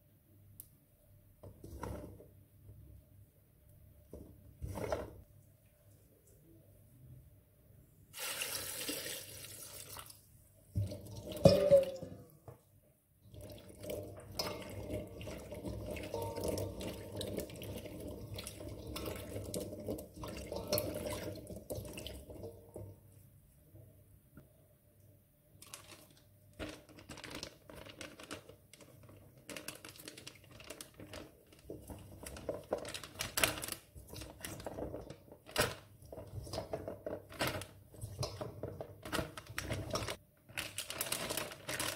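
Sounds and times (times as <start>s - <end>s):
water pouring into bowl: 8.2s - 10.2s, 13.3s - 22.8s.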